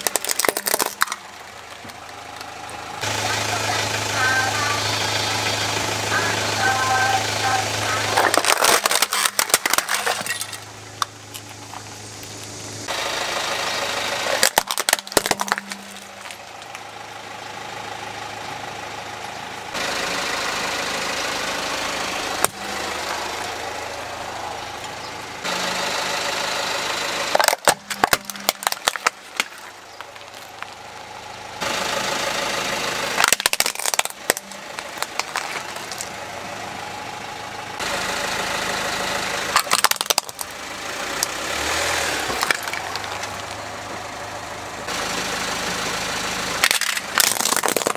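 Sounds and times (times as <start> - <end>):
plastic toys crushed by tyre: 0.0 - 3.1, 7.7 - 11.9, 14.1 - 16.8, 22.4 - 23.3, 27.2 - 31.1, 33.0 - 36.3, 39.5 - 40.6, 41.2 - 43.6, 46.6 - 47.9
car engine running: 0.0 - 47.9.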